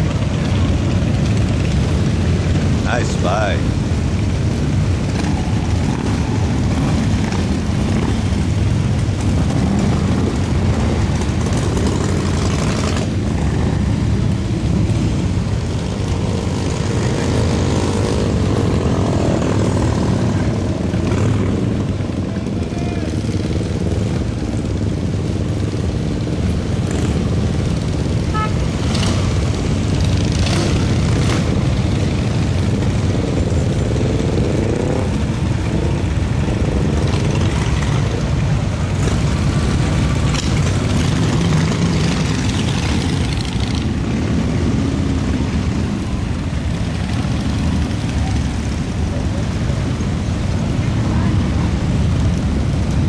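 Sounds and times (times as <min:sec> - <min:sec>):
motorcycles riding past: 0:00.0 - 0:53.0.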